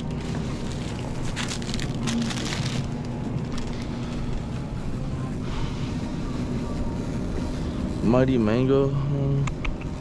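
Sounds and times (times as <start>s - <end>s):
plastic packaging crinkling: 0.0s - 4.6s
shopping cart wheels rumbling: 0.0s - 8.9s.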